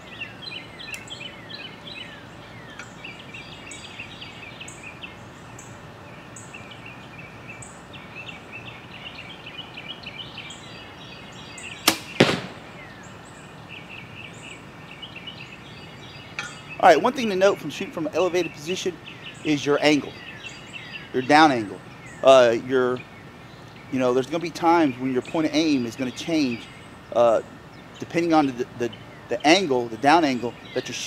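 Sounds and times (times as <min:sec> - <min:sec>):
birds chirping: 0:00.0 - 0:31.0
arrow striking target: 0:11.9 - 0:12.9.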